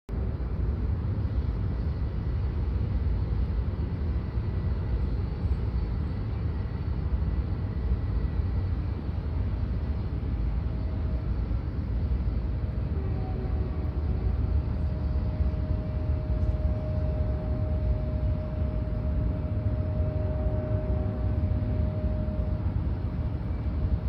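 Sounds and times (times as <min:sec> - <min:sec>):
aircraft engines taxiing: 0:00.1 - 0:24.0.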